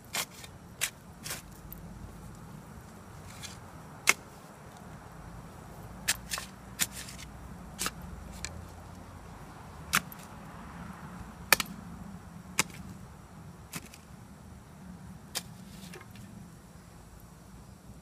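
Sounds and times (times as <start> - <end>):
shovel striking dry dirt: 0.0 - 1.8, 3.2 - 4.5, 6.0 - 8.6, 9.9 - 10.3, 11.5 - 11.8, 12.5 - 12.9, 13.7 - 14.1, 15.3 - 16.1.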